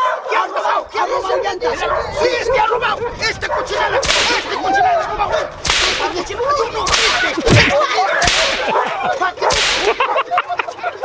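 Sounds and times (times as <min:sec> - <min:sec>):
rope whip cracking: 0:04.0 - 0:04.8, 0:05.6 - 0:10.2.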